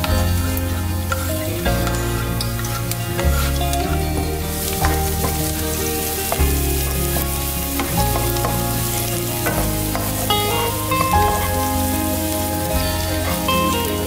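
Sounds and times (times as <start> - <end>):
background music: 0.0 - 14.0
vegetables sizzling in hot oil: 4.6 - 14.0.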